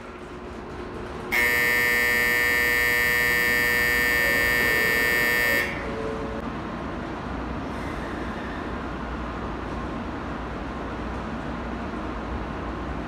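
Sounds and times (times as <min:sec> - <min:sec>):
steady hum of station: 0:00.0 - 0:13.0
harsh steady platform buzzer: 0:01.3 - 0:06.0.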